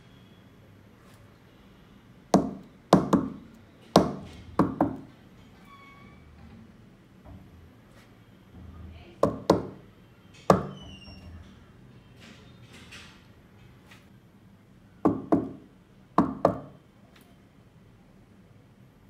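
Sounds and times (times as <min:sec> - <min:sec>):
knocks on a tabletop: 0:09.2 - 0:09.8.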